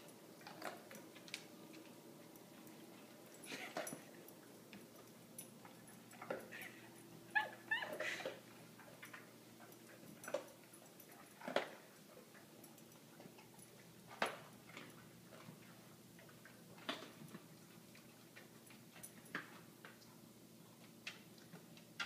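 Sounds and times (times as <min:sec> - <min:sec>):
dog whining: 0:06.4 - 0:08.4.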